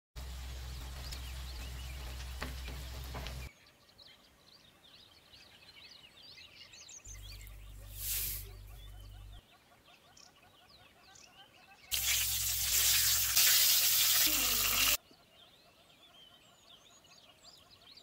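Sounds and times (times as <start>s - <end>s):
crackling hiss: 7.3s - 8.8s, 11.9s - 15.0s
loud sizzle in hot oil: 11.9s - 15.0s.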